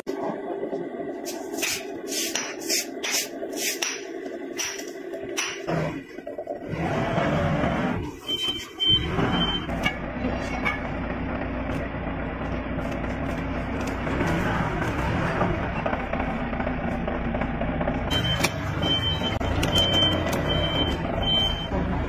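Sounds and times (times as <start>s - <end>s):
forklift engine running: 0.0s - 22.0s
high beeps: 8.2s - 9.7s, 18.1s - 21.7s.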